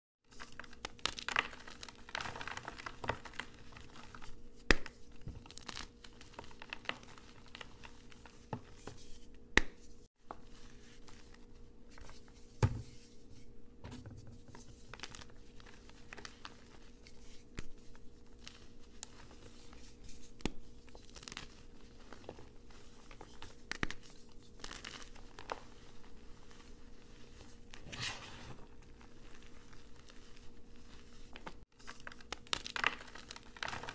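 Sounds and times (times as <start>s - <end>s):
chalk crunching and crumbling: 14.6s - 33.9s.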